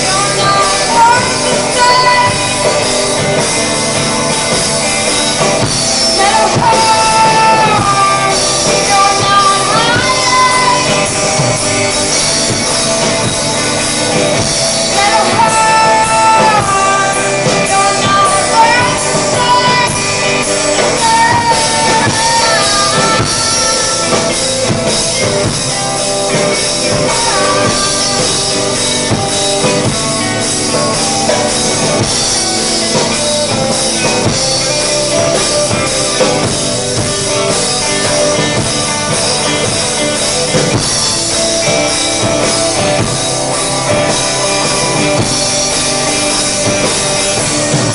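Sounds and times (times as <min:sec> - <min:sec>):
person singing: 0:00.0 - 0:03.7, 0:05.8 - 0:13.2, 0:14.4 - 0:32.2
drum kit: 0:00.0 - 0:47.9
electric guitars: 0:00.0 - 0:47.9.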